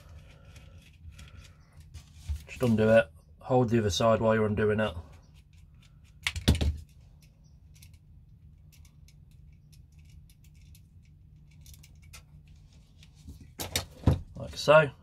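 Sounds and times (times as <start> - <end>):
allen key clicking on metal parts: 5.0 - 12.5
small parts clattering: 5.0 - 14.2.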